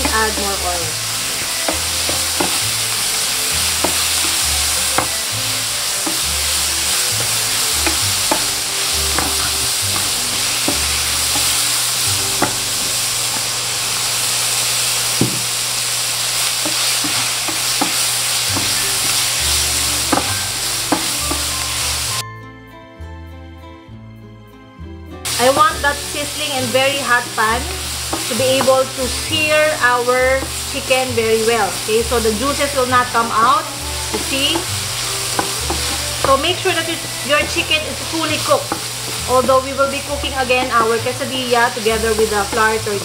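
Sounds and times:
chicken sizzling in a pan: 0.0s - 22.2s, 25.3s - 43.0s
wooden spatula scraping a pan: 1.2s - 13.6s, 16.6s - 21.6s, 32.2s - 43.0s.

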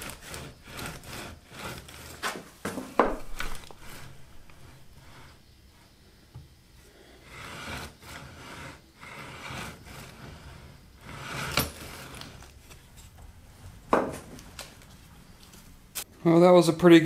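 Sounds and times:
carriage rolling on rails: 0.0s - 2.4s, 7.3s - 12.5s.

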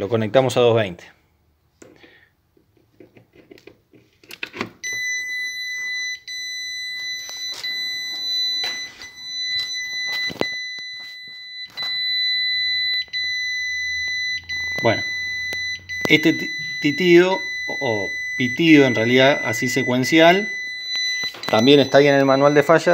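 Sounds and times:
high-pitched alarm beeping: 4.8s - 22.9s.

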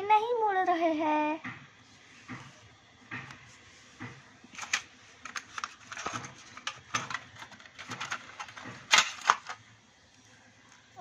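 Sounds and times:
plastic instruments and tin clicking: 4.6s - 9.6s.

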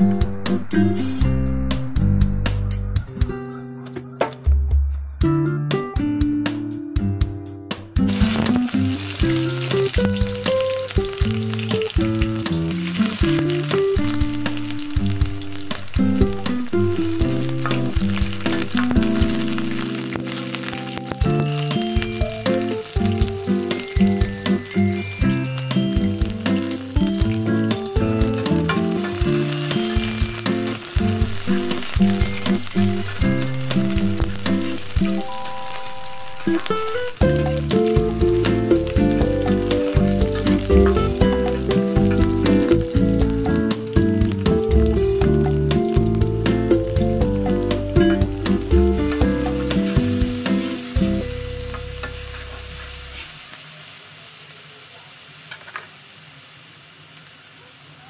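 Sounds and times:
background music: 0.0s - 52.4s
onions sizzling in hot oil: 8.1s - 58.0s.

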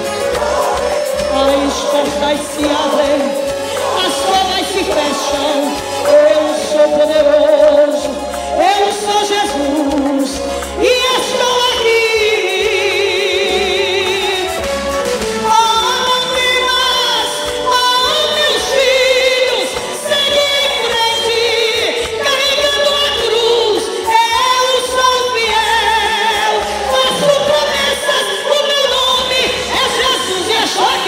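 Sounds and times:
woman singing a hymn: 0.0s - 14.7s, 15.4s - 31.0s
instrumental accompaniment: 0.0s - 31.0s.

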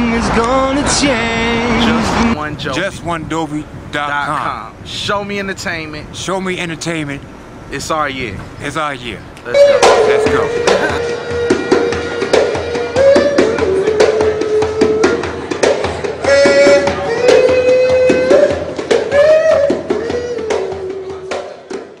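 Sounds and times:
man singing long notes: 9.5s - 11.2s, 16.2s - 21.4s
hand-drum beats: 9.5s - 22.0s.

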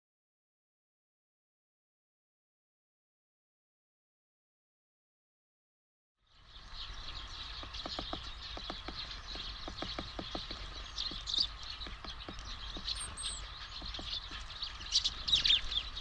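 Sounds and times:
sparrows chirping: 6.2s - 16.0s.

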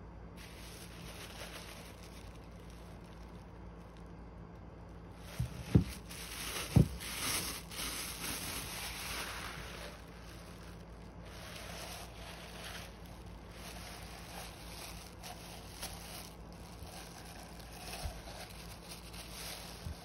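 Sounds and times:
plastic bag rustling: 0.3s - 20.0s
dull thumps: 5.2s - 9.2s.

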